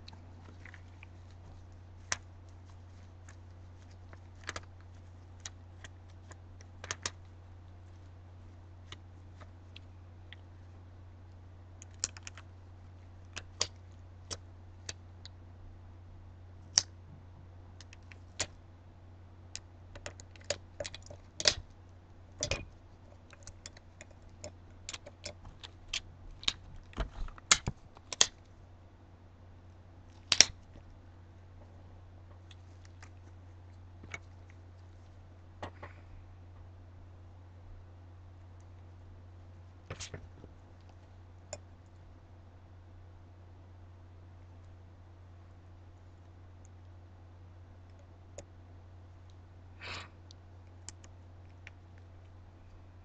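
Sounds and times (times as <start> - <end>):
low steady hum: 0.0 - 53.0.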